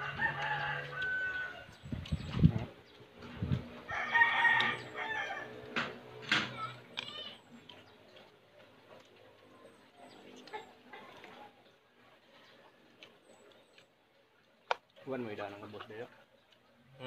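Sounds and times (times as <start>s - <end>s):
rooster crowing: 0.0s - 1.7s, 3.8s - 5.6s.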